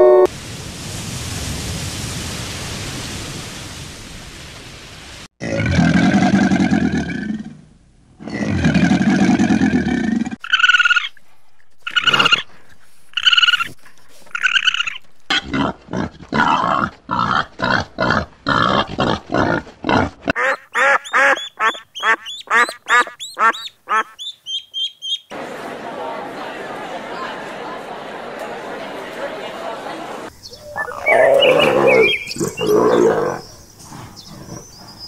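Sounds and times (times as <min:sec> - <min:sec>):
fast short repeated calls: 0:13.1 - 0:15.1, 0:20.4 - 0:25.3
higher animal calls: 0:30.5 - 0:33.5
long low animal calls: 0:30.5 - 0:34.7.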